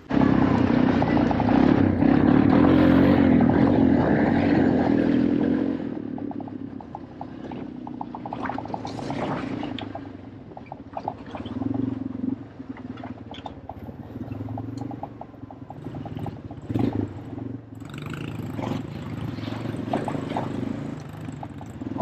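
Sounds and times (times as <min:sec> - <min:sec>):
small engine running unevenly: 0:00.0 - 0:10.9.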